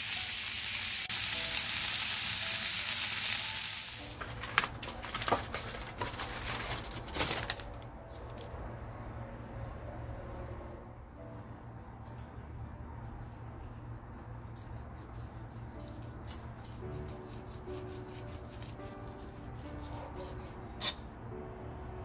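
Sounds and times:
steaks sizzling in a skillet: 0:00.0 - 0:04.0
aluminum foil crinkling: 0:04.0 - 0:08.6.

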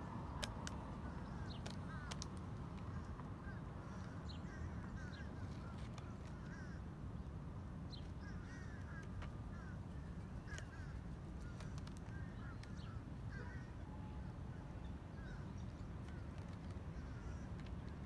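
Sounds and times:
bird calls: 0:00.3 - 0:06.8, 0:07.9 - 0:18.0.

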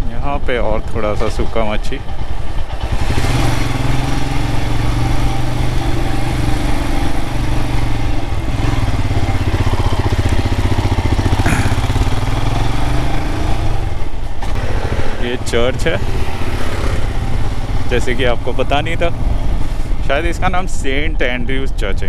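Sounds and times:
motorcycle engine thrum: 0:08.4 - 0:12.6.

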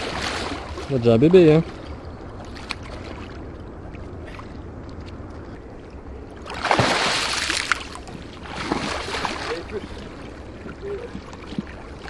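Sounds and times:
fish thrashing splash: 0:06.5 - 0:09.6.

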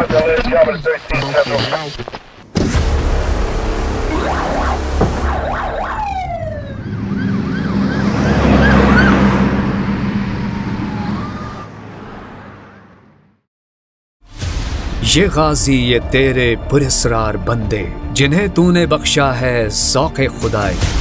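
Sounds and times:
police siren wailing: 0:03.0 - 0:12.0.

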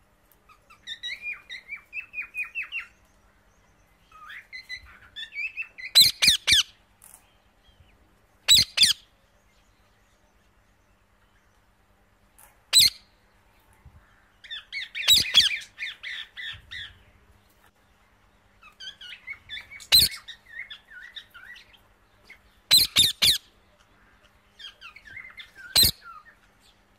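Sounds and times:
parrots chattering and chirping: 0:00.4 - 0:02.9, 0:04.1 - 0:06.8, 0:08.5 - 0:09.1, 0:12.5 - 0:13.1, 0:14.4 - 0:17.0, 0:18.6 - 0:26.8
parrots squawking: 0:05.2 - 0:06.7, 0:08.5 - 0:09.0, 0:12.7 - 0:13.0, 0:14.5 - 0:16.4, 0:18.6 - 0:21.6, 0:22.7 - 0:23.5, 0:24.1 - 0:26.3.

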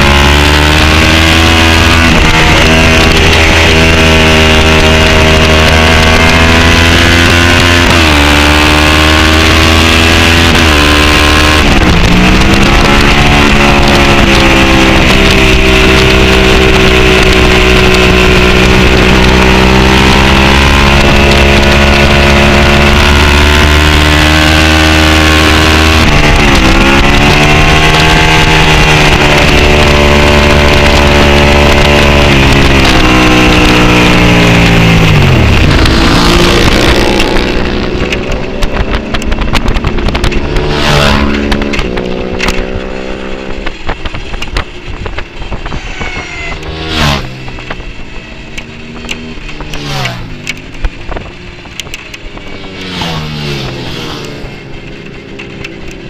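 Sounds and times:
racing motorcycle engine: 0:00.0 - 0:56.0
wind noise: 0:00.0 - 0:56.0
race bikes passing by: 0:38.0 - 0:56.0.

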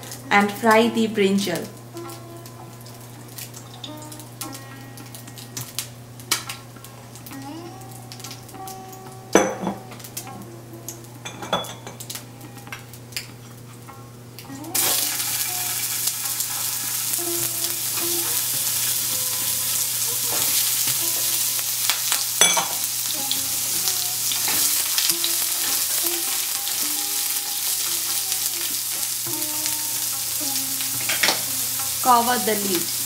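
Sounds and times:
food sizzling in oil: 0:00.0 - 0:33.0.

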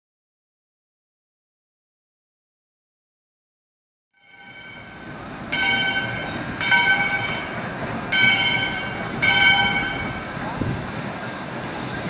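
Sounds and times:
low rumble of locomotive engine: 0:04.2 - 0:12.0
steam locomotive bell ringing: 0:04.2 - 0:12.0.

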